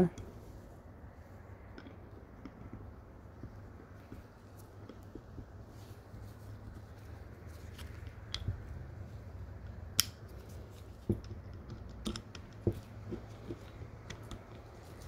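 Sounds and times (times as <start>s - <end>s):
low steady hum: 0.0s - 15.0s
small metal clicks and taps: 9.6s - 15.0s.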